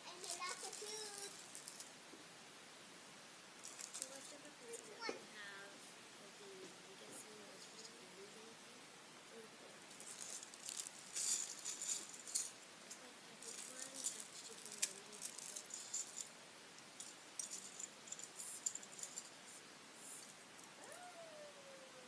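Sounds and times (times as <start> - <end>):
plastic bricks rattling and clicking: 13.4 - 16.2.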